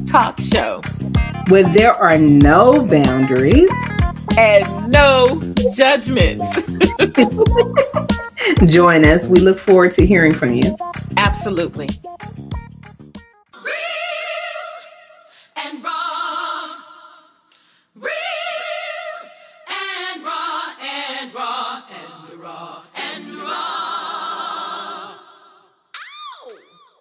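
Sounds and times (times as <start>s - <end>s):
women singing in harmony: 13.6s - 25.8s.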